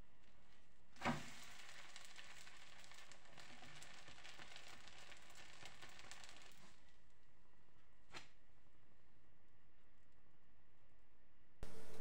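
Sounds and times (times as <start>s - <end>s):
pancake sizzling in oil: 0.3s - 7.0s
soft thud of pancake flipping: 1.0s - 1.5s.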